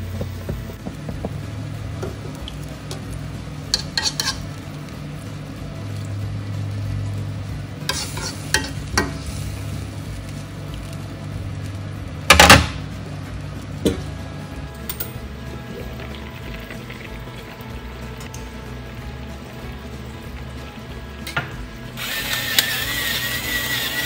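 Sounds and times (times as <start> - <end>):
low steady hum: 0.0 - 22.2
metal spatula scraping a wok: 3.7 - 4.6, 7.8 - 9.8.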